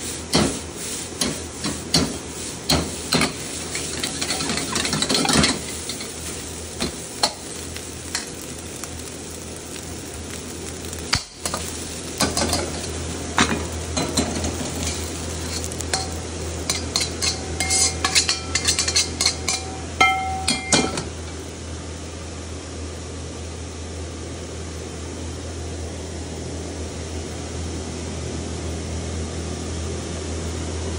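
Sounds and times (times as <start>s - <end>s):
rice sizzling in a wok: 0.0s - 30.9s
steady low hum: 0.0s - 30.9s
metal ladle scraping and clinking: 3.1s - 6.2s, 14.2s - 21.1s.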